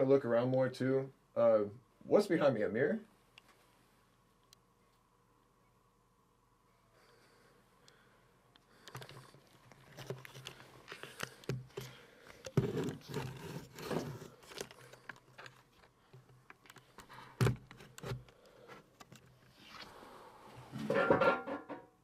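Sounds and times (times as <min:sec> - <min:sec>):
handling clicks scrapes and rustles: 0:08.8 - 0:19.8.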